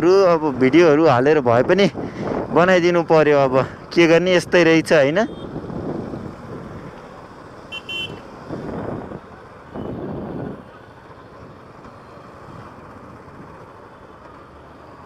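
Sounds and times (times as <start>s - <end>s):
motorcycle road and wind noise: 0.0s - 15.0s
high horn beeps: 5.2s - 5.6s, 7.7s - 8.3s.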